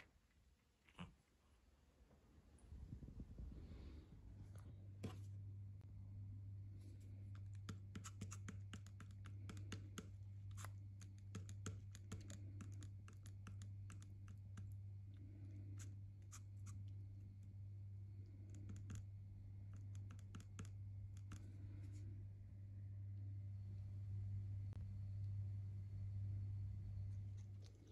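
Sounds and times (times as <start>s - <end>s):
low hum: 1.7s - 8.0s, 12.1s - 27.9s.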